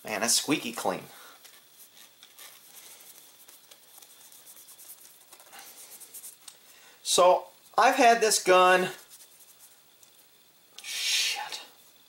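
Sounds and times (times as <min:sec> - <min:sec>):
cloth rubbing on metal: 0:00.6 - 0:06.4, 0:08.6 - 0:10.4.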